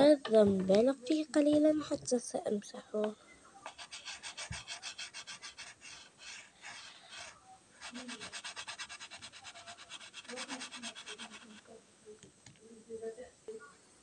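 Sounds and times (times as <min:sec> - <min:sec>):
finger rubbing chalkboard: 0:03.7 - 0:11.7.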